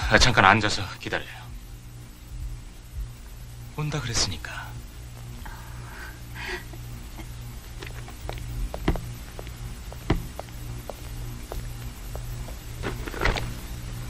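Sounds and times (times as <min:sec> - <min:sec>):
low hum: 0:00.0 - 0:14.0.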